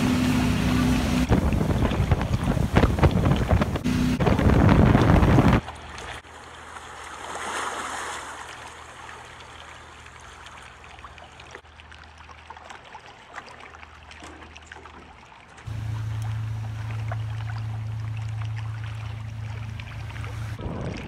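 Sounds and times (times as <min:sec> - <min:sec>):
low steady hum: 0:00.0 - 0:06.6, 0:15.7 - 0:21.0
water splashing along boat hull: 0:00.0 - 0:21.0.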